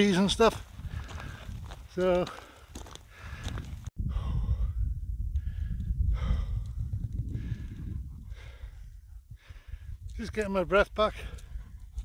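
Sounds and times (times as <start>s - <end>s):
man breathing hard: 0.8s - 10.1s.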